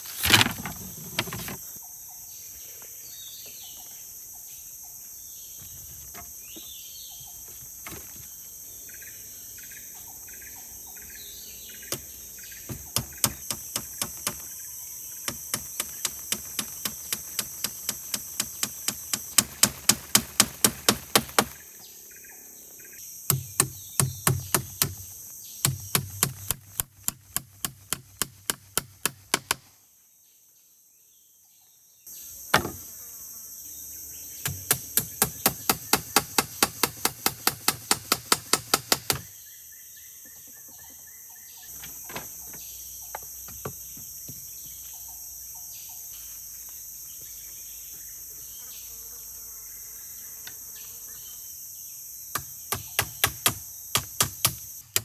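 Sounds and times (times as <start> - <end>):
insects droning: 0.0 - 31.3, 31.9 - 55.0
sharp tool knocks: 32.5 - 32.8.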